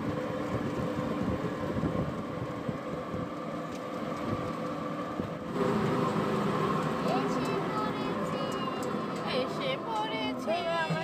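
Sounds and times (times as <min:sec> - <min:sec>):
wind noise: 0:00.0 - 0:03.4
engine hum: 0:00.0 - 0:11.0
road rumble: 0:00.0 - 0:11.0.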